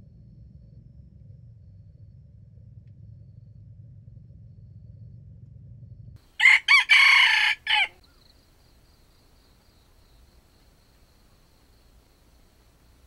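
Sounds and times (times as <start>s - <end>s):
rooster crowing: 6.4s - 8.2s.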